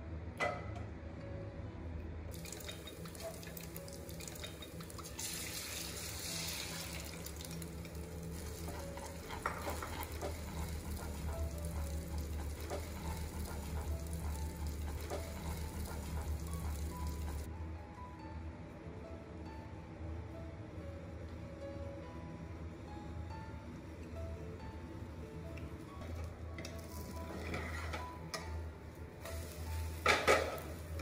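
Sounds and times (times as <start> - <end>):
tap water running into sink: 2.3 - 17.5.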